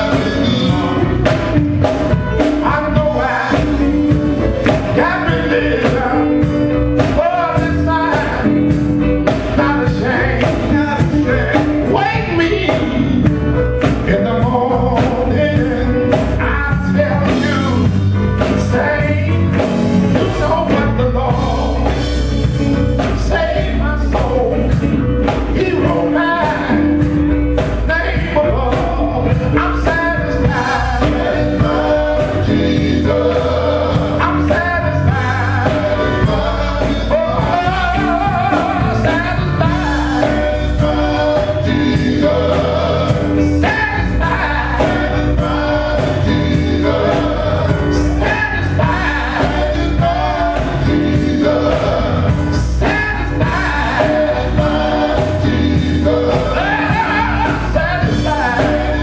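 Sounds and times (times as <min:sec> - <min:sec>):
drum kit beat: 0:00.0 - 0:59.0
electric bass: 0:00.0 - 0:59.0
electric guitar: 0:00.0 - 0:59.0
man singing lead: 0:00.0 - 0:59.0
backing voices: 0:27.6 - 0:59.0.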